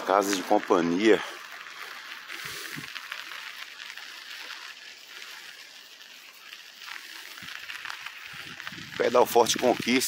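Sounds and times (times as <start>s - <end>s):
wind on microphone: 8.3s - 10.0s.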